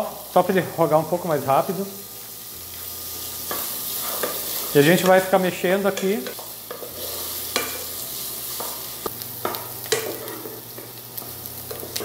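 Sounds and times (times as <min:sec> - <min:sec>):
vegetables sizzling in oil: 0:00.0 - 0:12.0
wooden spoon scraping a pot: 0:06.7 - 0:07.8, 0:09.9 - 0:10.8.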